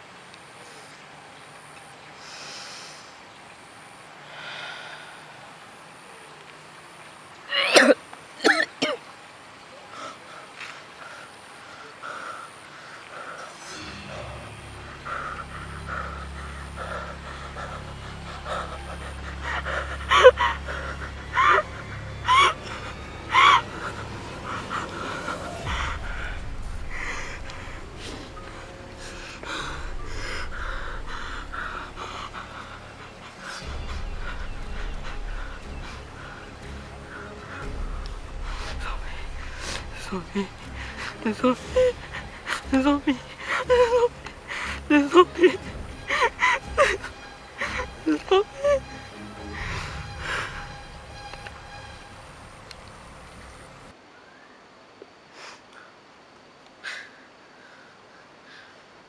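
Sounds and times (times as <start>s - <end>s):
man panting heavily: 14.8s - 27.6s.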